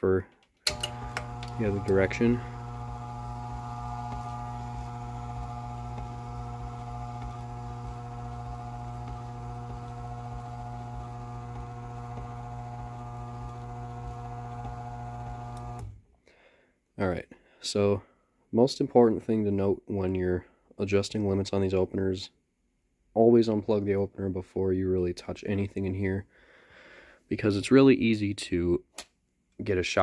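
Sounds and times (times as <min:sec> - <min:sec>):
garage door opener motor hum: 0:00.7 - 0:16.0.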